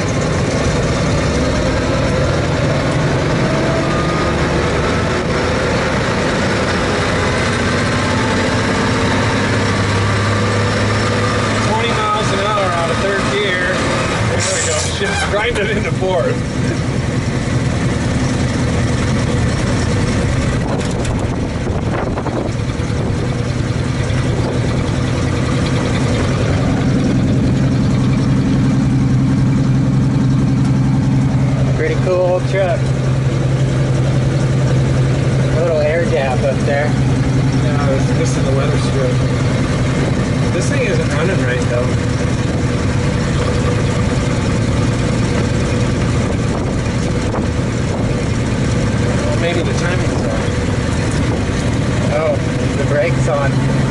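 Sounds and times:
truck engine running: 0:00.0 - 0:53.9
tyres on gravel road: 0:00.0 - 0:53.9
steady whine: 0:10.9 - 0:53.9
short rattle: 0:19.2 - 0:31.6.

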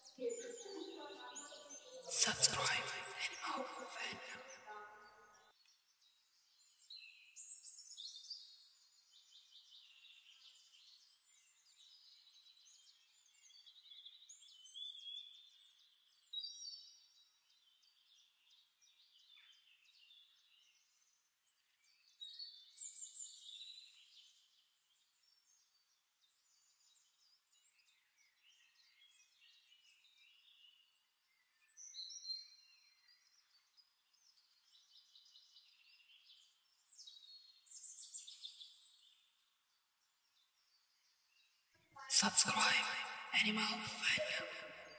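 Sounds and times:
birds chirping and trilling: 0:00.0 - 0:44.9.

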